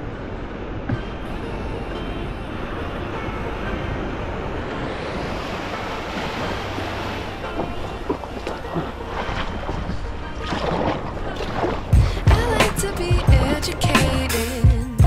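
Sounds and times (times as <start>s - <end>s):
small waves washing on shore: 0.0s - 14.6s.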